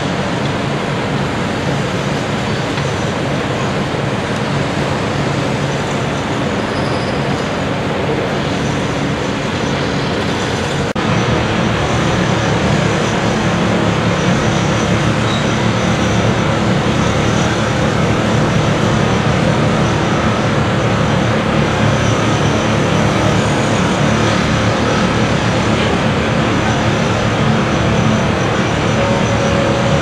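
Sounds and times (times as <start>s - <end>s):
diesel construction machinery running: 0.0s - 30.0s.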